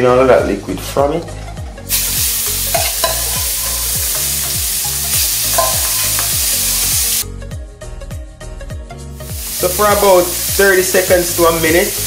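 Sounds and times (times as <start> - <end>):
shrimp sizzling in hot oil: 1.9 - 7.2, 9.2 - 12.0.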